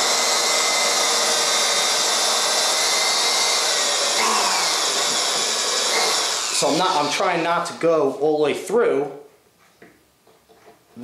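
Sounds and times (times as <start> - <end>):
electric drill whining: 0.0 - 7.8.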